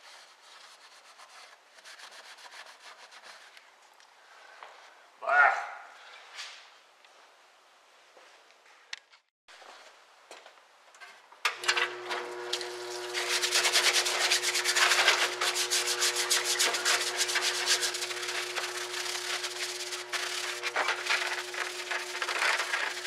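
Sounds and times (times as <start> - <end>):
brush scrubbing metal: 0.0 - 3.6, 12.1 - 23.0
pump motor hum: 11.6 - 23.0.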